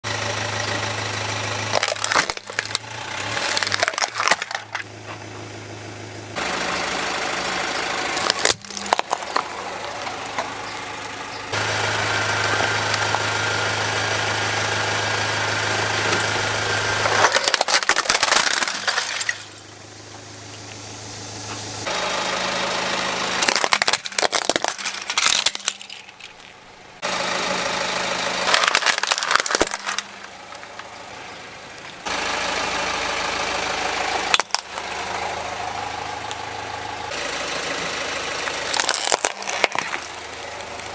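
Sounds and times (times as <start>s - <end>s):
car engine idling: 0.0s - 40.9s
plastic toys cracking and crunching: 1.6s - 4.9s, 8.2s - 11.0s, 17.0s - 19.7s, 23.4s - 26.7s, 28.4s - 30.9s, 34.3s - 35.2s, 38.5s - 40.9s.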